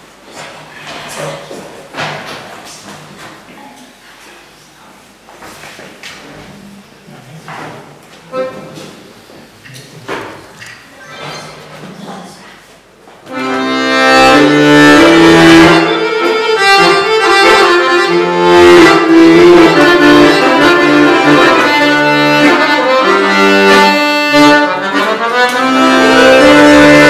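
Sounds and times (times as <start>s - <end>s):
accordion playing solo: 13.3s - 27.0s.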